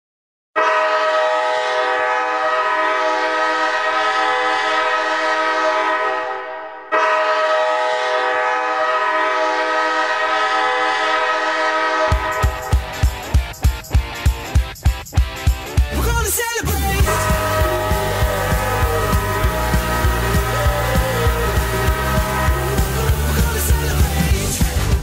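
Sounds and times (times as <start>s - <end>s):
goal horn blasts: 0.6s - 13.1s, 17.0s - 23.7s.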